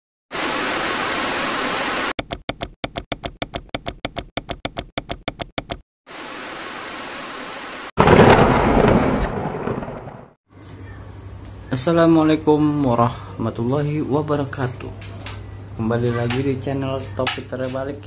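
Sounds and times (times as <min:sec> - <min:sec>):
tv static hiss: 0:00.4 - 0:02.1
keyboard key clicks: 0:02.2 - 0:05.8
loud burst: 0:08.0 - 0:10.4.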